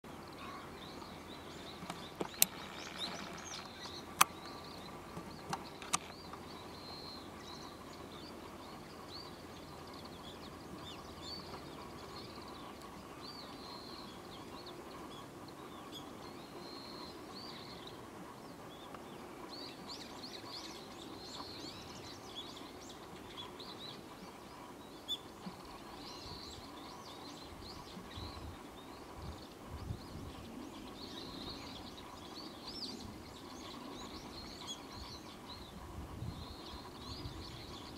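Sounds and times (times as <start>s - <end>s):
faint outdoor hiss: 0.0s - 37.9s
songbirds chirping: 0.0s - 37.9s
sharp clicks: 1.8s - 4.6s, 5.4s - 6.2s.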